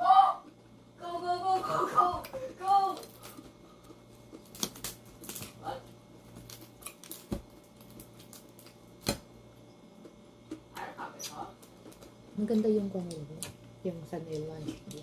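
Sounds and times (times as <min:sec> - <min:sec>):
fried fish crackling and crunching: 0:03.0 - 0:09.2.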